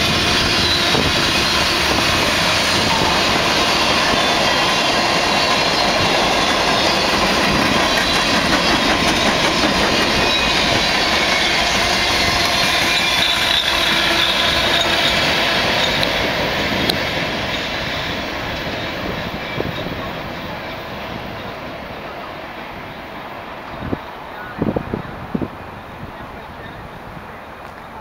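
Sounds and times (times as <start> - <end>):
train wheels clattering on rails: 0.0 - 22.2.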